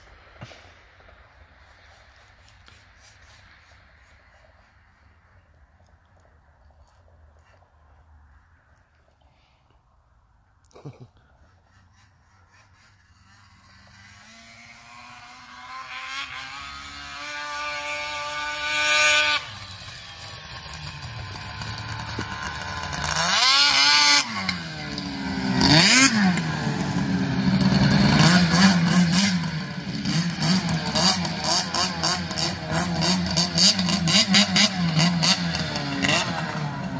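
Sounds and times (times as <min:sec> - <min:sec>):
snowmobile engine revving: 0:10.8 - 0:36.9.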